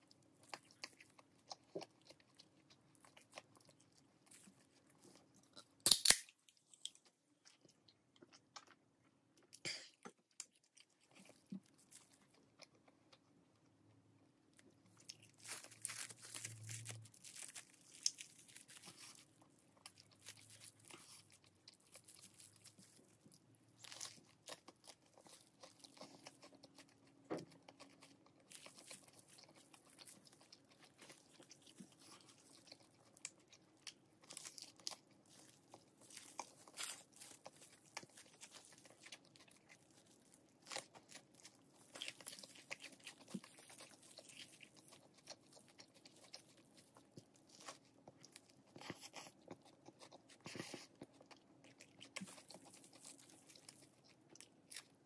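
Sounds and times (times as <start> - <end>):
crunchy biting and chewing: 14.8 - 55.0.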